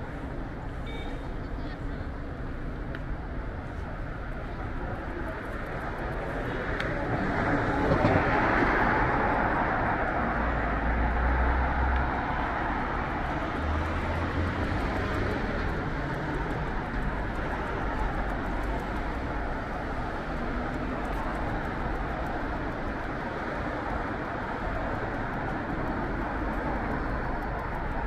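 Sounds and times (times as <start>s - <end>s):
low vehicle engine rumble: 0.1s - 28.0s
passing cars: 1.8s - 28.0s.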